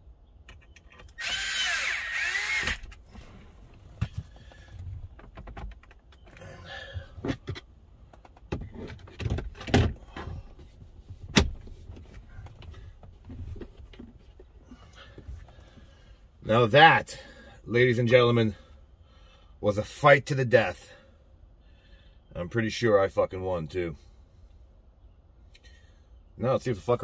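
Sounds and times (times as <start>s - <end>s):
power tool whirring: 1.1s - 3.0s
knocks thuds and clicks: 3.9s - 6.4s.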